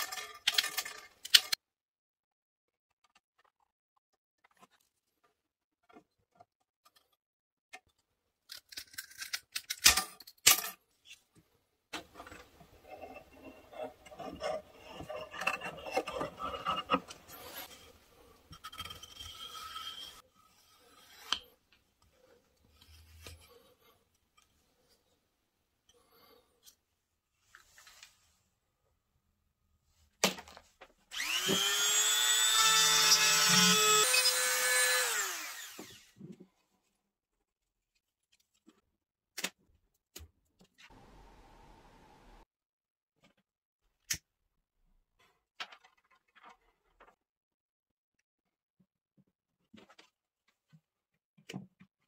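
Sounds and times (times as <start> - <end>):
scraping and rubbing wood: 12.0 - 21.6.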